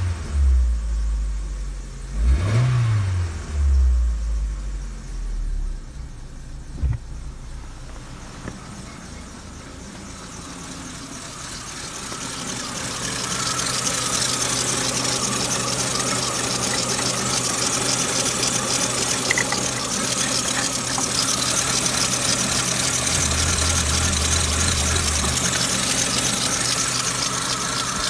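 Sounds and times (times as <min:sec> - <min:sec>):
car engine idling: 0:00.0 - 0:02.5, 0:03.2 - 0:28.0
low thump: 0:06.8 - 0:08.6.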